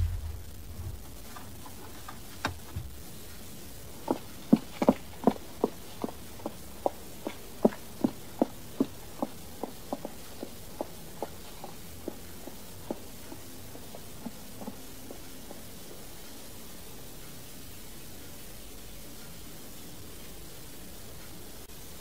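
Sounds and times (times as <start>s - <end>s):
footsteps walking: 0.0s - 2.9s.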